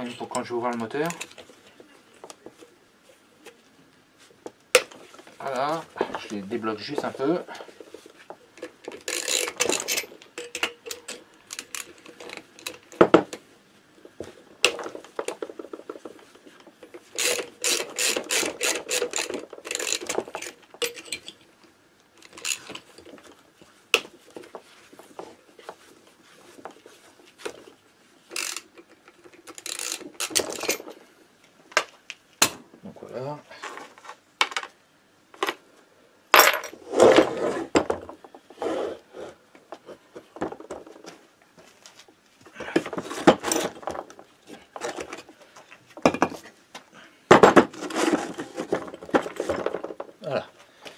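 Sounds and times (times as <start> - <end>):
ratchet wrench clicking: 17.2 - 20.1, 28.3 - 28.6, 29.5 - 30.4.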